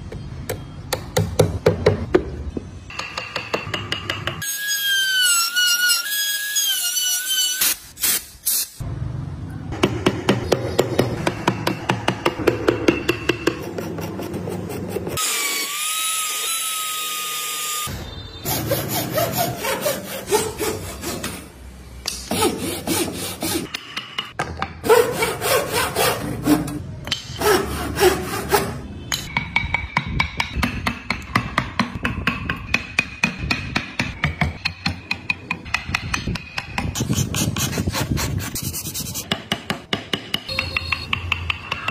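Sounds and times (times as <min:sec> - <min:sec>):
chisels scraping and shaving wood: 0:36.7 - 0:39.7.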